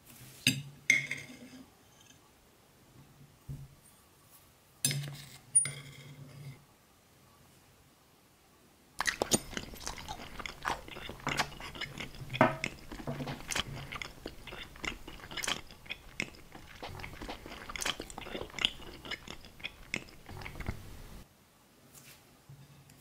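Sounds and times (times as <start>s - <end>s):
person chewing crunchy food: 9.0s - 21.2s.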